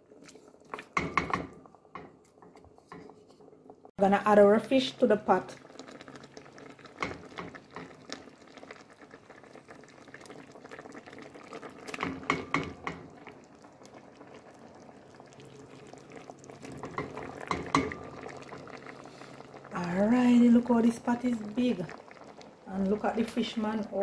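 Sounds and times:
stew simmering in a pot: 0.0 - 24.0
knocks and clatter in pot: 0.7 - 3.9, 6.8 - 8.2, 11.8 - 13.2, 16.6 - 18.7.

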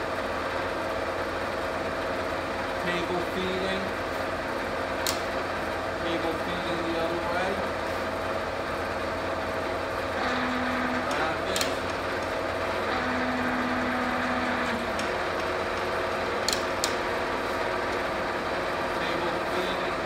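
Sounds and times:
milling machine humming and whining: 0.0 - 20.0
feed levers clicking: 5.0 - 5.4, 11.1 - 12.3, 14.7 - 17.1
lower power feed tone: 10.1 - 11.9, 12.5 - 20.0.

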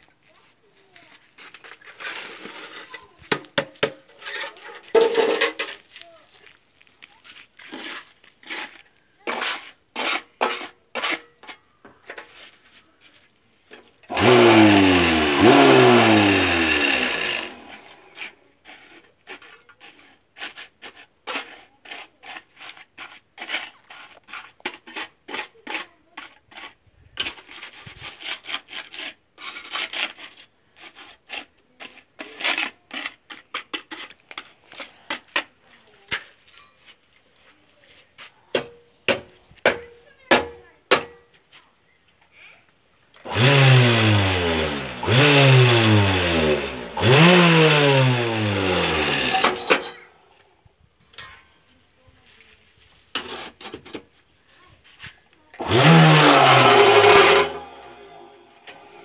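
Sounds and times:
trowel scraping concrete mix: 0.9 - 13.3, 14.1 - 39.9, 43.2 - 50.1, 52.2 - 54.2, 54.8 - 59.0
loud grating noise: 14.1 - 18.0, 43.3 - 49.8, 55.6 - 59.0.

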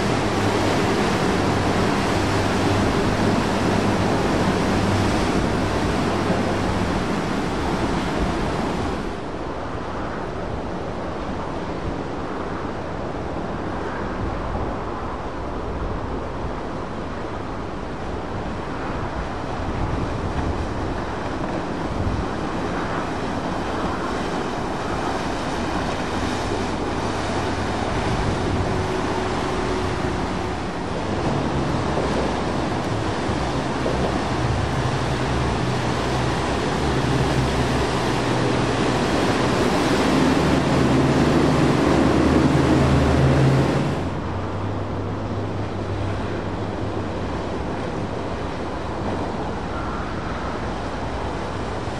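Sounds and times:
motorboat engines running: 0.0 - 9.3, 19.8 - 51.9
water rushing and splashing: 0.0 - 51.9.

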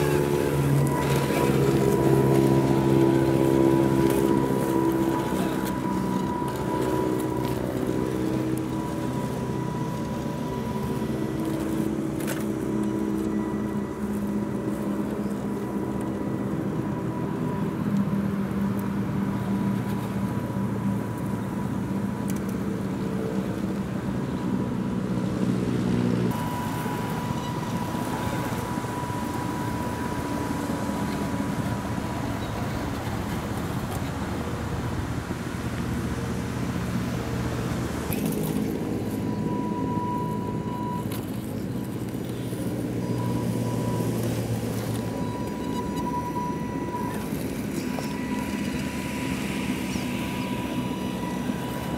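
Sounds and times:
toy truck motor whining: 43.1 - 51.9.

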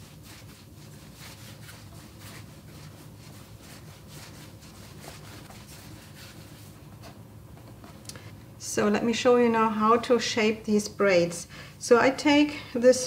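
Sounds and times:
hands rubbing dough: 0.0 - 8.0
low steady hum: 0.0 - 13.0.

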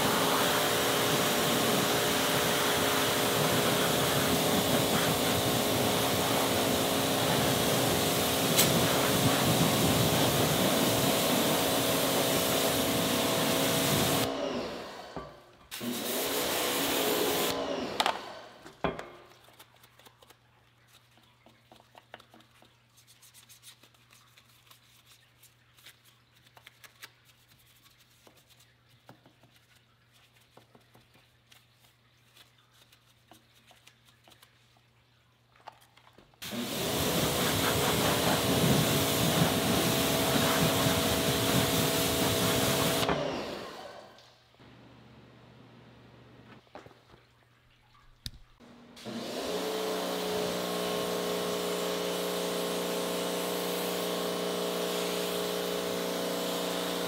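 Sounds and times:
brush scrubbing wheel: 0.0 - 14.3, 36.4 - 43.0
pressure washer spraying: 0.0 - 14.3, 15.7 - 17.6, 36.4 - 43.9, 49.0 - 57.0.

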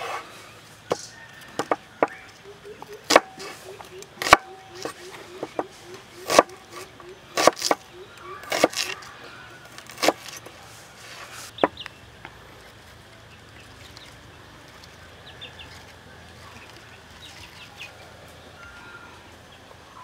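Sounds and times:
faint bird calls: 0.0 - 10.1, 15.3 - 20.0
cleaver chopping on cutting board: 3.1 - 3.5.

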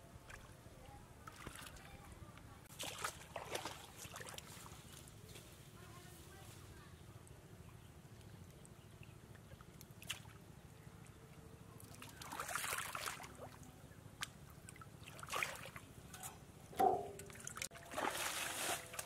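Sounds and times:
hands splashing in muddy water: 2.7 - 4.6, 12.0 - 13.4, 16.9 - 19.0.

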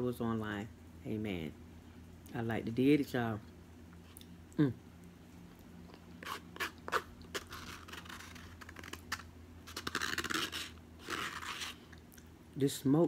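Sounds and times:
plastic spoon scraping a cup: 6.2 - 12.0.

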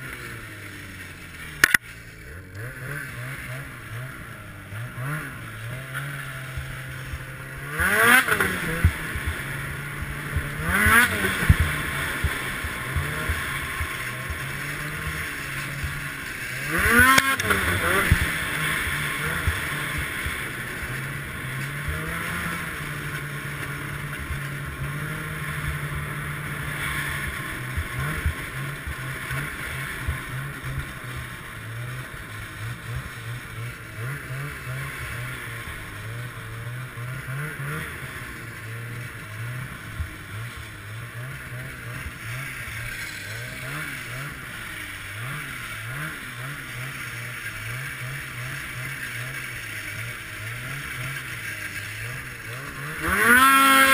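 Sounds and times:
snowmobile engine revving: 0.0 - 53.9.

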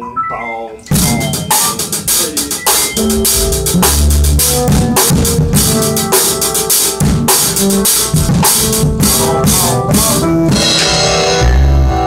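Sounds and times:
ringing pitched notes: 0.9 - 7.0
drum kit groove: 0.9 - 12.0.

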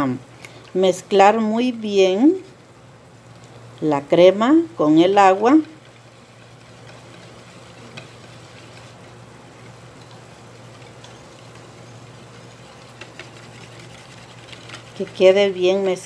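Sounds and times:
low steady hum: 0.0 - 16.0
whisk swishing in bowl: 4.8 - 16.0
whisk wires ticking on bowl: 4.9 - 16.0.

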